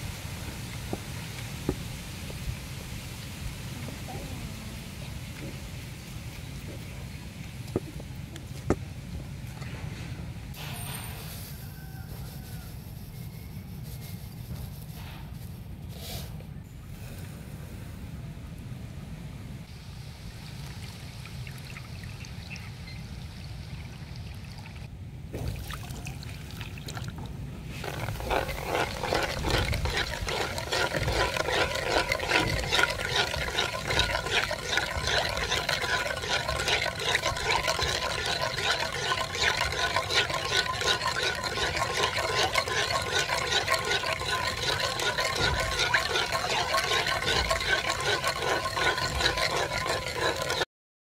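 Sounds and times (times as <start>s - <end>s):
metal spoon scraping in pan: 27.7s - 50.6s.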